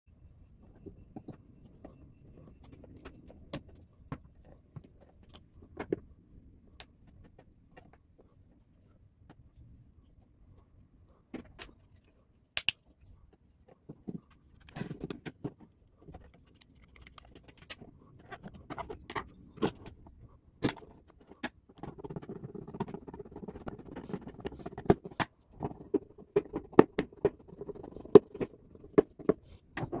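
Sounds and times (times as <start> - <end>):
clicks and knocks of wires and tools: 11.3 - 22.3.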